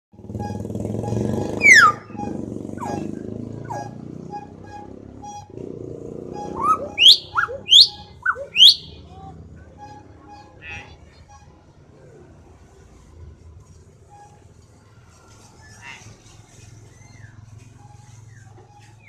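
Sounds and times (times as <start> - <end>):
myna whistling: 0.2 - 5.6, 6.2 - 9.2.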